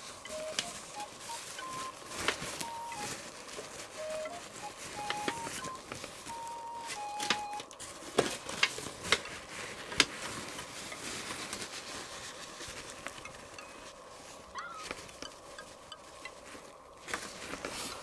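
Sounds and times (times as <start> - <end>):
soft melody notes: 0.0 - 8.7
tissue paper rustling and crackling: 0.0 - 18.0.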